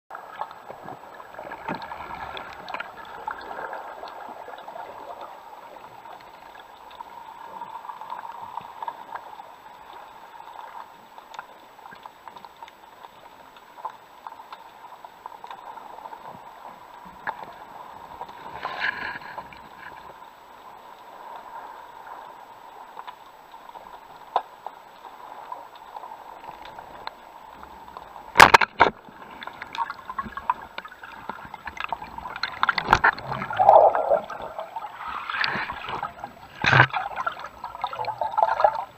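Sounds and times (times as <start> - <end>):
bubbling and water rushing: 0.1 - 38.9
underwater hiss: 33.0 - 37.2.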